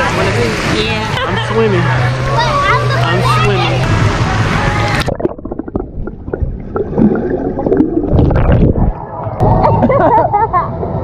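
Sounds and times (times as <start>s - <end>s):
poolside noise: 0.0s - 11.0s
underwater bubbling and gurgling: 4.4s - 10.0s.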